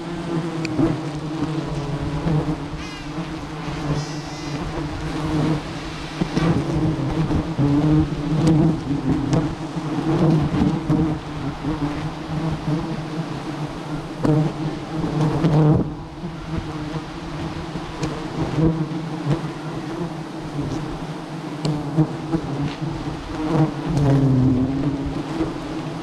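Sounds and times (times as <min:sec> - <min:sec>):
bees buzzing: 0:00.0 - 0:26.0.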